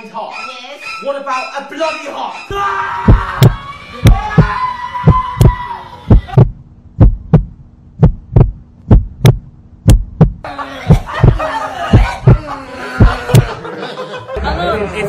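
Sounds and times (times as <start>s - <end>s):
person screaming: 2.5s - 6.4s
heartbeat thumps: 3.0s - 13.6s
steady low hum: 3.0s - 13.6s.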